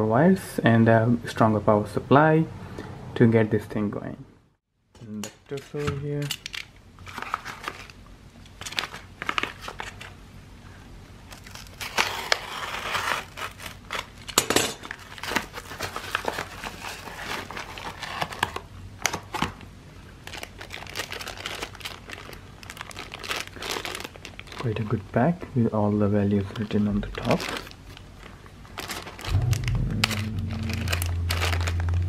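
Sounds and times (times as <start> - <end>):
paper and plastic rustling: 5.6 - 10.1, 11.3 - 19.6, 20.2 - 25.0, 26.4 - 32.0.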